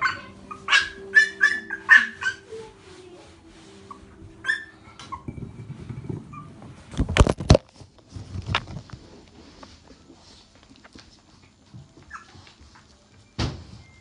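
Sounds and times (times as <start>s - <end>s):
puppy yelps: 0.0s - 2.4s, 4.4s - 5.3s, 12.1s - 12.4s
rustling: 0.0s - 14.0s.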